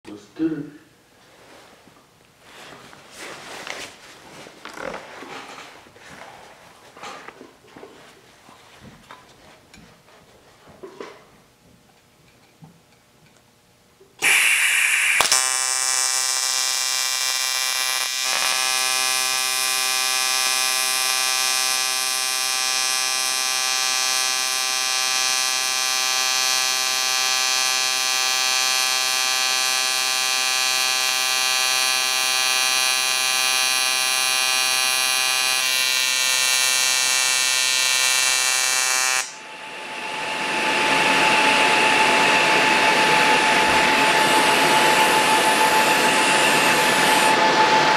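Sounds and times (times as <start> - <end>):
welding arc striking hiss: 14.2 - 39.4
welding arc buzzing: 14.2 - 47.4
steady rushing noise: 39.4 - 47.9.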